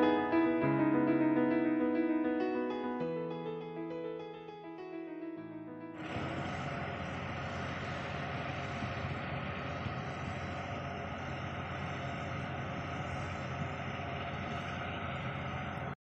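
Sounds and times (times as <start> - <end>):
steady hum tones: 6.0 - 16.0
steady mechanical drone: 6.0 - 16.0.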